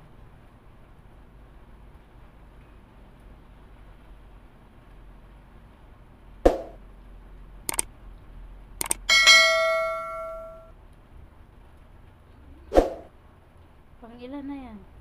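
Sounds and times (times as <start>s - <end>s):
short clicks: 7.7s - 7.9s, 8.8s - 9.1s
notification bell ding: 9.1s - 10.7s.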